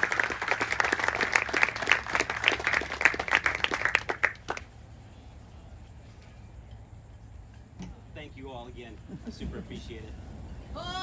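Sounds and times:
people clapping: 0.0 - 4.7.

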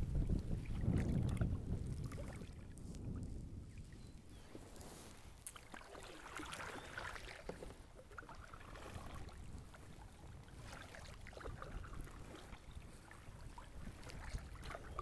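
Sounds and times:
kayak paddle swishing water: 0.0 - 15.0.

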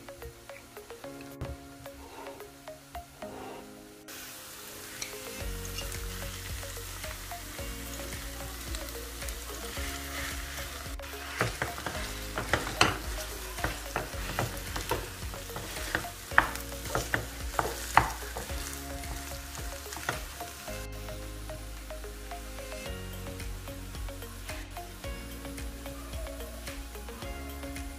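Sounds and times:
frying pan sizzling: 4.0 - 22.8
wooden spoon tapping and scraping pan: 9.2 - 20.4.

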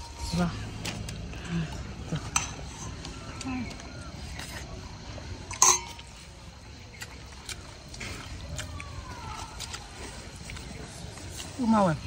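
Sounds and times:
chewing and mouth smacks: 6.9 - 11.6.

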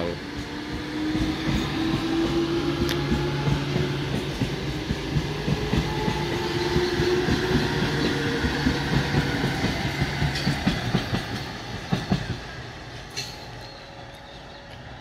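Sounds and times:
train wheels clacking: 0.3 - 13.9.

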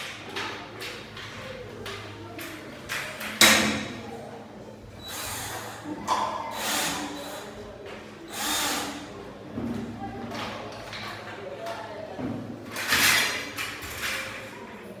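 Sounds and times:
cordless drill driving screw: 8.3 - 9.0.

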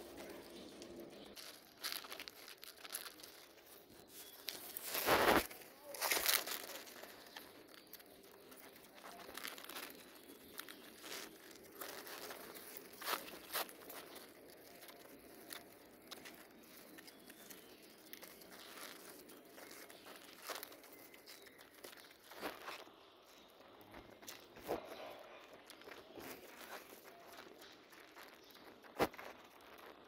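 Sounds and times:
grain rattling: 0.0 - 24.7
pigeons pecking feed: 0.0 - 30.0.

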